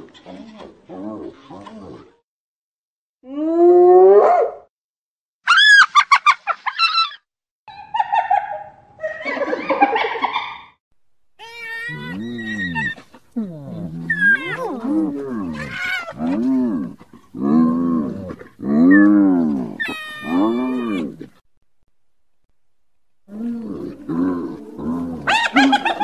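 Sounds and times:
hyenas calling: 0:11.4 - 0:17.7, 0:18.3 - 0:21.4, 0:23.4 - 0:26.0.

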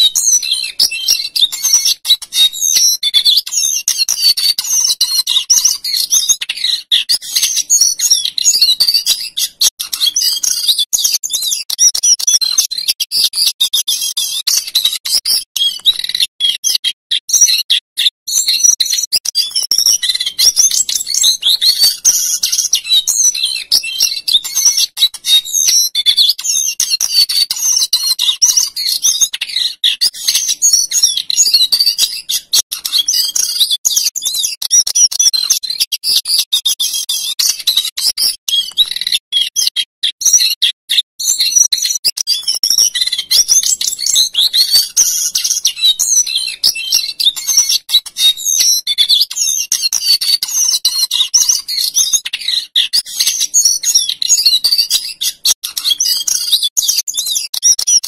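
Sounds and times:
bird singing warbling song: 0:00.0 - 0:58.0.

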